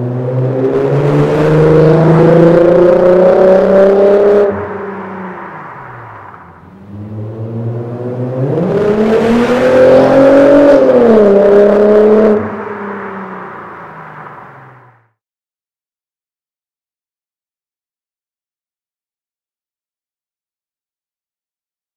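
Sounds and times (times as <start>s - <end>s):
car accelerating hard in drive-by: 0.0s - 15.1s.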